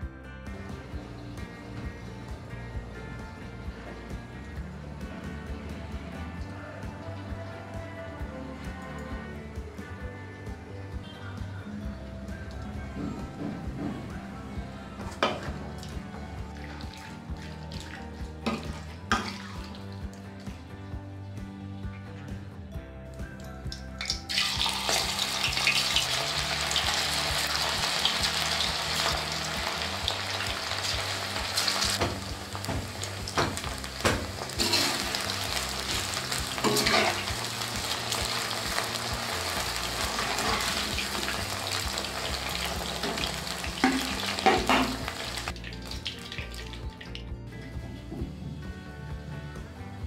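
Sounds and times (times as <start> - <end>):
chicken deep-frying in oil: 15.2 - 20.0, 24.0 - 47.1
metal skimmer clinking on wok: 36.6 - 37.3.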